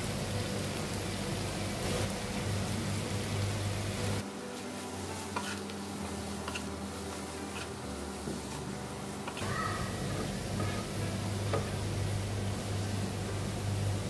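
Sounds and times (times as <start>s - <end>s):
vegetables sizzling in a wok: 0.0s - 14.0s
spatula tapping and scraping pan: 5.3s - 5.7s, 6.4s - 8.6s, 9.2s - 9.5s.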